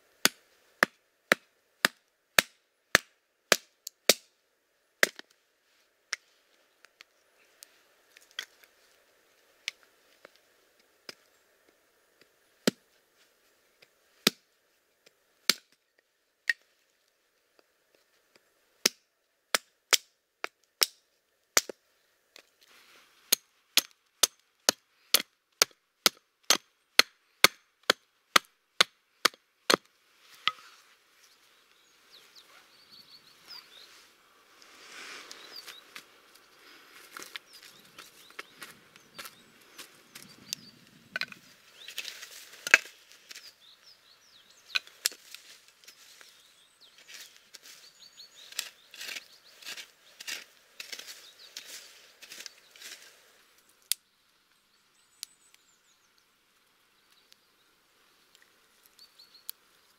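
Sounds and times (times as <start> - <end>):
hatchet chopping wood: 0.2 - 4.3, 5.0 - 5.2, 12.6 - 12.8, 14.2 - 14.4, 15.4 - 15.8, 18.8 - 21.0, 21.6 - 21.8, 23.3 - 30.6.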